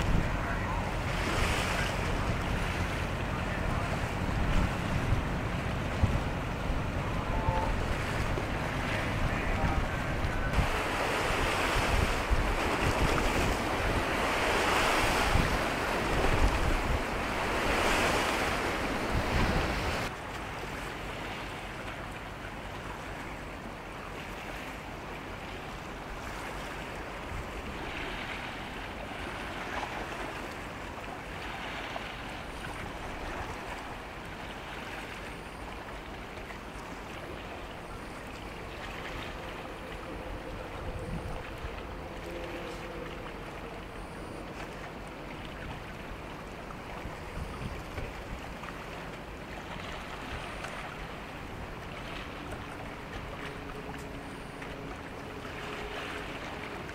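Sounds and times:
wind buffeting microphone: 0.0s - 20.1s, 39.0s - 43.0s
sea water washing: 0.0s - 56.9s.

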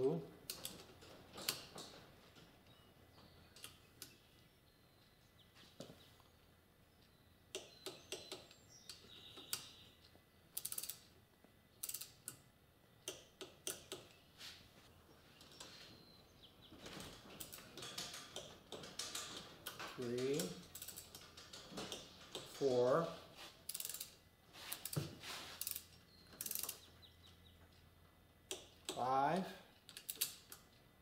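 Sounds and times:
ratcheting torque wrench clicking: 10.6s - 11.1s, 11.8s - 12.4s, 19.6s - 22.5s, 23.7s - 25.0s, 25.6s - 26.8s, 29.9s - 30.6s.

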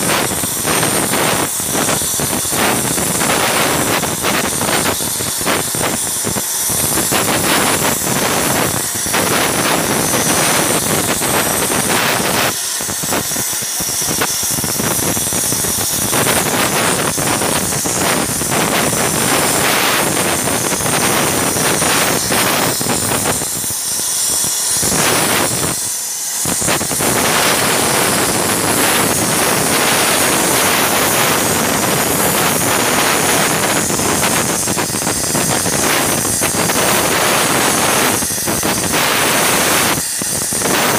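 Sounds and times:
plasma torch hissing: 0.0s - 40.9s.

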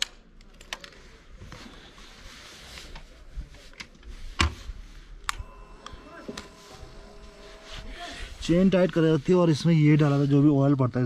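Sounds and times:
faint steady tones: 5.1s - 10.4s.

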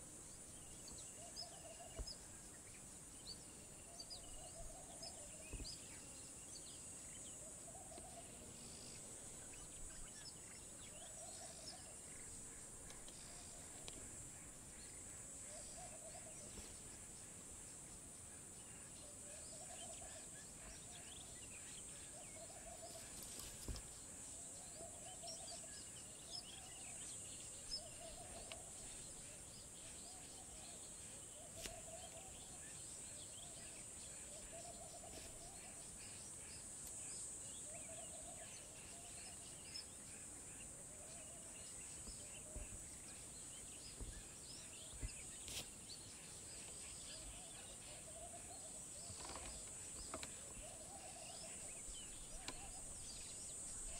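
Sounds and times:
high insect drone: 0.0s - 53.9s
bird chirps: 24.7s - 53.9s.

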